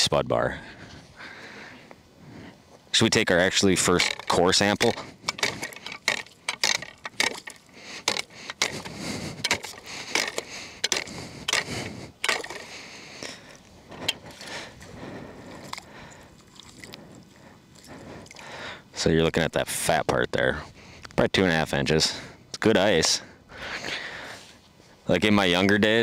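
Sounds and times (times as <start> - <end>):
broken ice crunching and clinking: 3.9 - 13.4
steel bar striking ice: 4.0 - 12.7.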